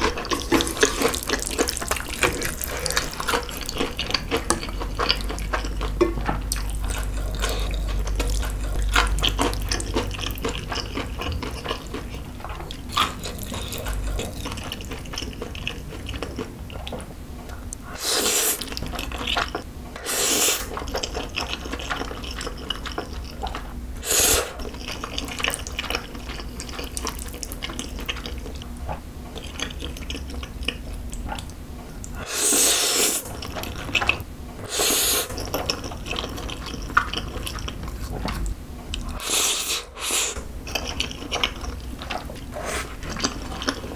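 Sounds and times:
wet chewing: 0.0 - 43.9
noodle slurping: 17.9 - 18.8, 20.0 - 20.7, 24.0 - 24.7, 32.2 - 33.4, 34.6 - 37.6, 39.1 - 40.4.

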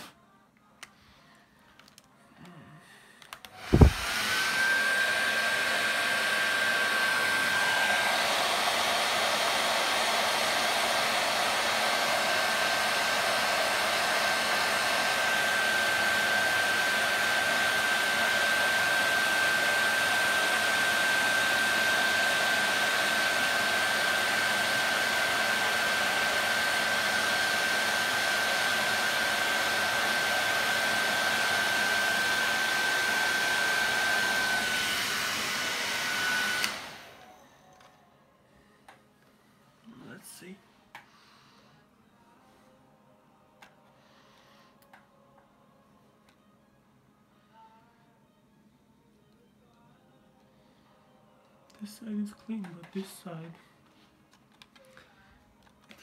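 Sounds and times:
hair dryer running: 3.4 - 37.4.

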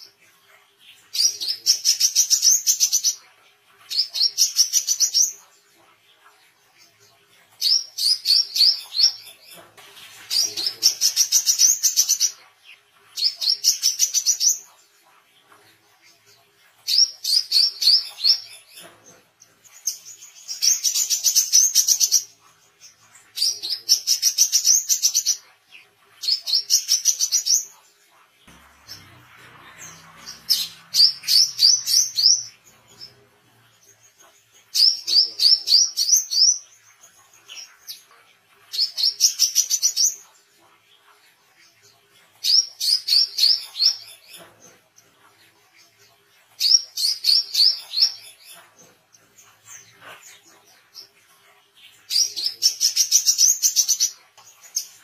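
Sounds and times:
bird singing high chattering notes: 28.5 - 33.8.

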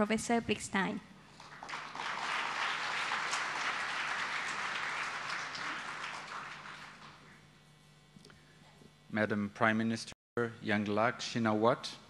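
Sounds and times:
audience applauding: 1.3 - 7.3.

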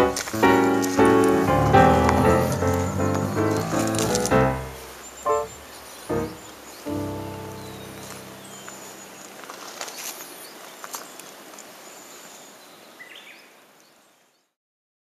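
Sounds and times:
musical note: 0.0 - 9.0
open air hiss: 0.0 - 14.4
faint bird chirps: 4.6 - 14.6.

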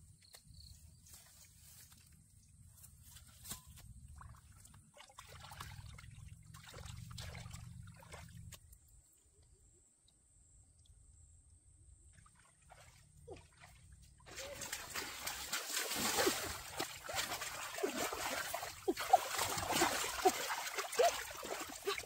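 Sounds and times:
hands splashing in water: 14.3 - 22.0.

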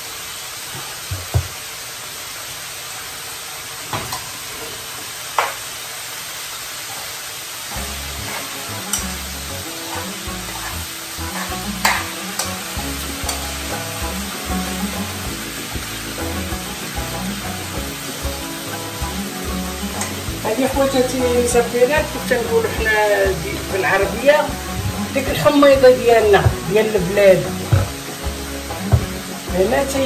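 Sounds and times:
sizzling hiss: 0.0 - 30.0
faint background music: 7.7 - 30.0.

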